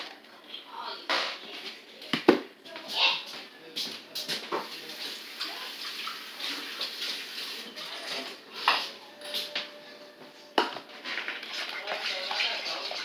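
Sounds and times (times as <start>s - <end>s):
running water: 4.6s - 8.6s, 11.0s - 13.0s.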